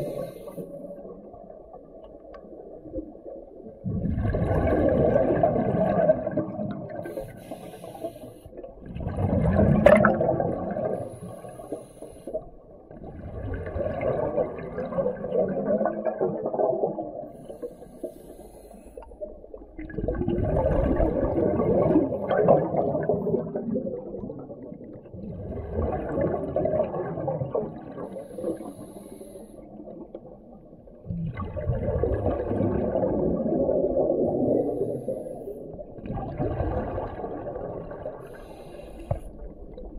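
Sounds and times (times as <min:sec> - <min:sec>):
underwater breath bubbling: 0:00.0 - 0:01.3, 0:03.8 - 0:30.1, 0:31.0 - 0:39.9.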